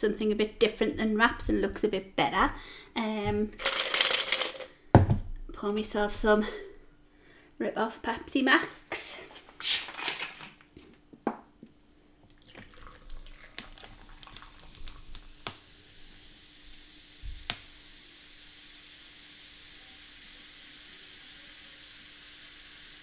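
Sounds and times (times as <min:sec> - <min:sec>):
cola pouring into a glass: 0:12.2 - 0:17.1
fizzing hiss of carbonation: 0:12.3 - 0:23.0.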